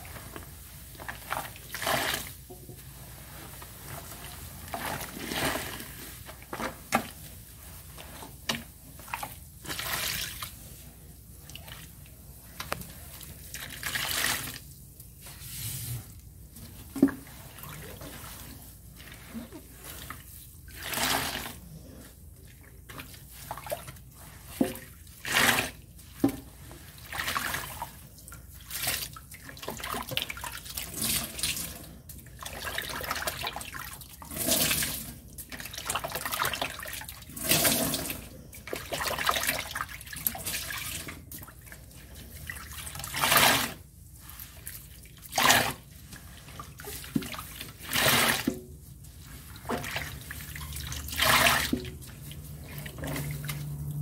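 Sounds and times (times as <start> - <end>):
wet sponge squelching in water: 0.0 - 54.0.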